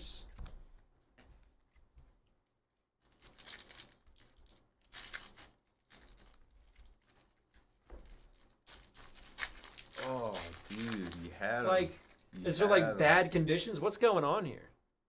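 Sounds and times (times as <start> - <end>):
foil wrapper tearing: 3.0 - 12.3.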